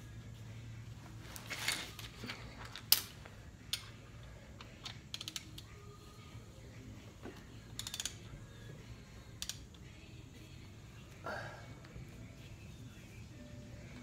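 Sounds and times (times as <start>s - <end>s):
ratchet wrench clicking: 2.7s - 4.0s, 4.6s - 5.9s, 7.7s - 8.4s, 9.1s - 9.9s.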